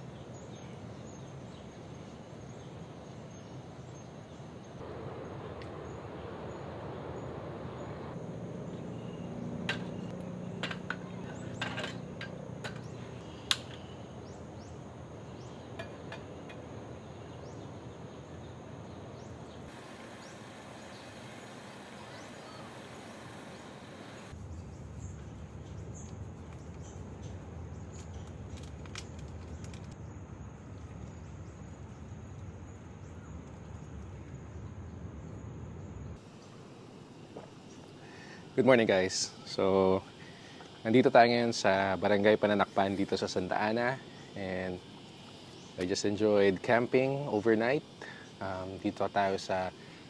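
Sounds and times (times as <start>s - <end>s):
outdoor background noise: 0.0s - 50.0s.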